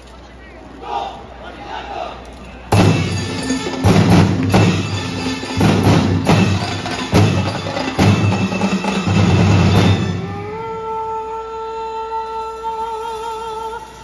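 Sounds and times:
sharp drum hits: 0:02.7 - 0:10.2.

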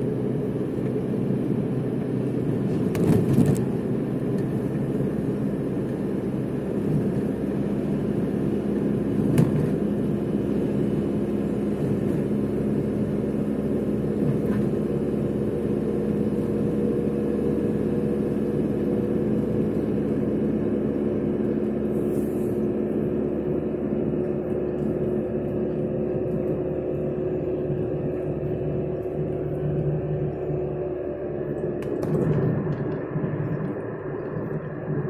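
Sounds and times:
car engine hum: 0:00.0 - 0:35.0.

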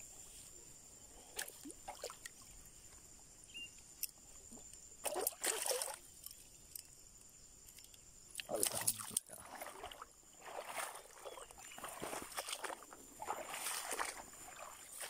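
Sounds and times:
water splashing: 0:01.4 - 0:02.4, 0:05.0 - 0:06.0, 0:08.4 - 0:15.0.

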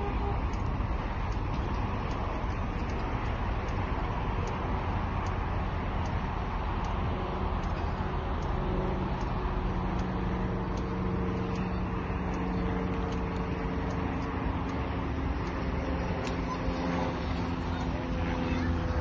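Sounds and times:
faint regular ticking: 0:00.0 - 0:19.0
low engine hum: 0:00.0 - 0:19.0.

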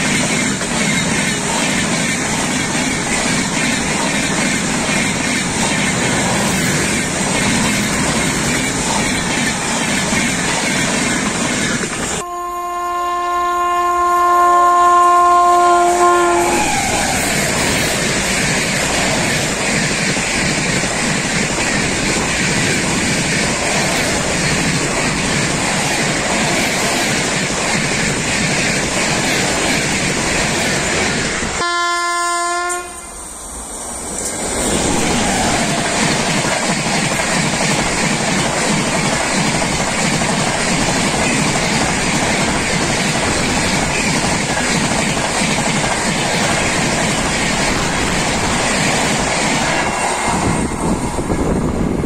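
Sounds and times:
passing train rumble and clatter: 0:00.0 - 0:52.0
train horn: 0:12.2 - 0:17.3, 0:31.6 - 0:33.2.

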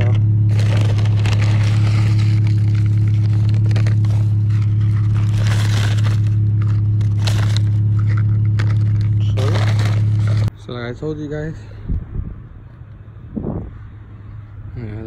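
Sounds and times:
paper bag crinkling and rustling: 0:00.0 - 0:10.5
loud low hum: 0:00.0 - 0:15.0.

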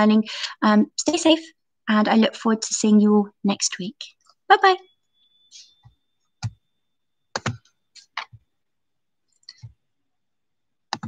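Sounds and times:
hands tapping recording device: 0:07.3 - 0:08.4.

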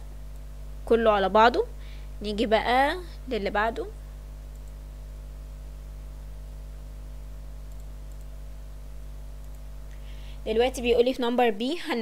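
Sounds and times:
low electrical hum: 0:00.0 - 0:12.0
faint clicks: 0:04.5 - 0:04.8, 0:07.6 - 0:08.4, 0:09.4 - 0:10.0.

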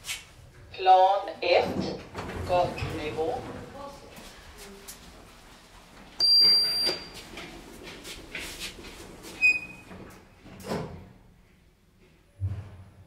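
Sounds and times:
high-pitched lift beep: 0:06.2 - 0:07.2.

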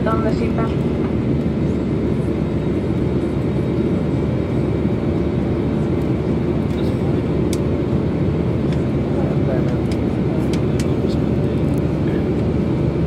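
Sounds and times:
airliner cabin engine rumble: 0:00.0 - 0:13.0.

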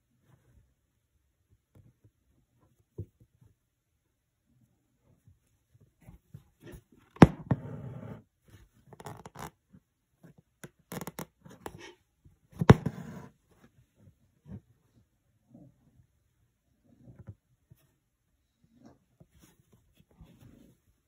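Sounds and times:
thread tapping and rasping through fabric: 0:08.9 - 0:11.8.

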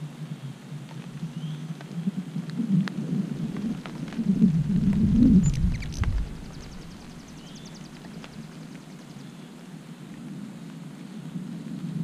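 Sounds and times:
light ticks of rain: 0:00.0 - 0:12.0
deep rumble: 0:01.0 - 0:08.5
hummingbird wings humming: 0:01.2 - 0:09.5
high bird chirp: 0:05.0 - 0:09.4.

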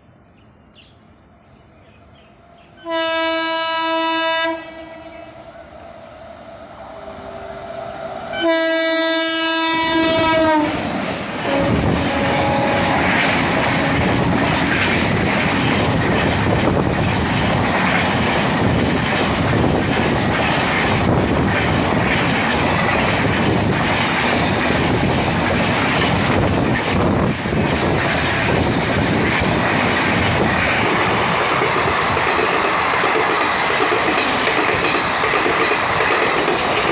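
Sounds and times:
train coaches rushing past: 0:01.0 - 0:36.9
electric locomotive horn: 0:02.8 - 0:05.4, 0:08.3 - 0:15.8.

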